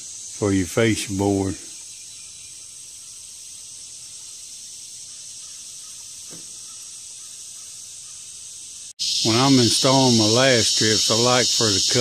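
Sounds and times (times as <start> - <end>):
insects chorus: 0.0 - 12.0
faint light knock: 6.3 - 6.6.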